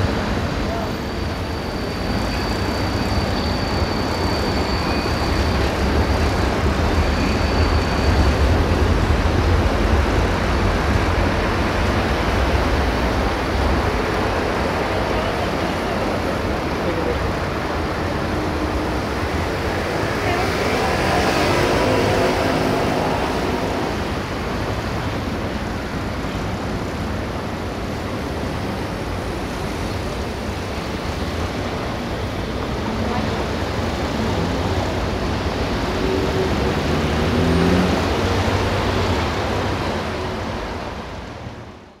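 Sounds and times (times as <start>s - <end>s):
cars driving past: 18.2s - 24.5s, 34.2s - 40.8s.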